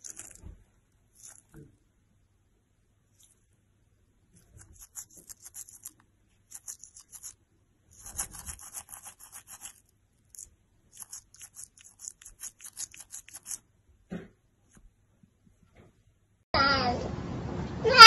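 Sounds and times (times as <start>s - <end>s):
toothbrush scrubbing teeth: 0.0s - 0.5s, 1.1s - 1.6s, 4.4s - 13.6s.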